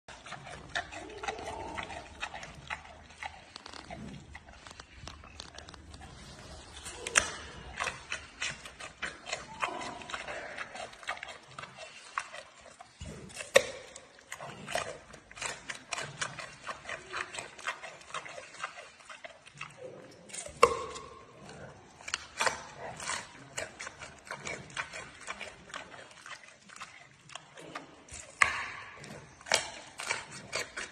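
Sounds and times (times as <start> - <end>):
panda crunching a carrot: 0.1 - 30.9.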